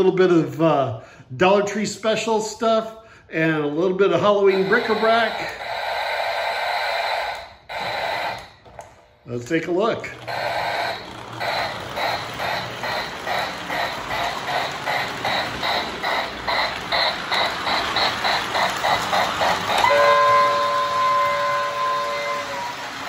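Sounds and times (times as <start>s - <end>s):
model steam locomotive chuffing: 4.5s - 8.4s, 10.0s - 23.0s
locomotive whistle: 4.5s - 8.6s, 10.2s - 23.0s.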